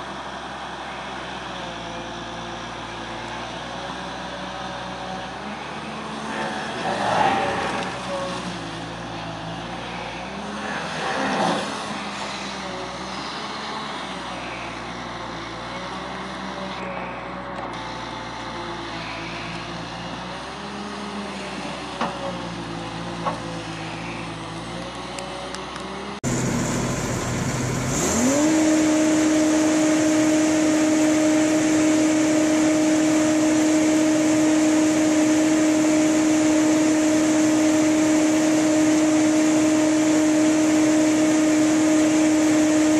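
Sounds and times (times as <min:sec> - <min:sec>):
diesel engine under load: 0:00.0 - 0:42.9
whirring hum of trencher drive: 0:00.0 - 0:42.9.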